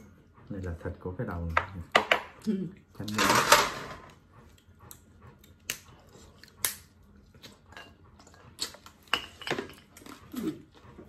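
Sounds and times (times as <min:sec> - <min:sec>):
chewing: 0:04.3 - 0:11.0.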